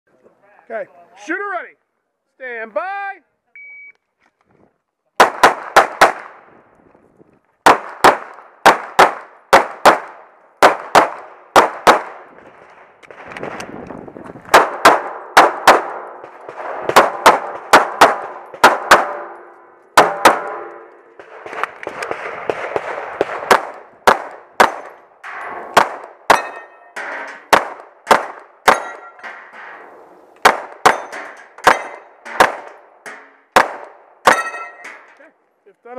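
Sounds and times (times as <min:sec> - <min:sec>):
pistol shots: 0:05.2 - 0:06.4, 0:07.6 - 0:12.3, 0:14.5 - 0:29.2, 0:30.4 - 0:32.9, 0:33.5 - 0:35.0
steel targets ringing: 0:26.3 - 0:27.5, 0:28.6 - 0:29.4, 0:30.8 - 0:33.4, 0:34.2 - 0:35.1.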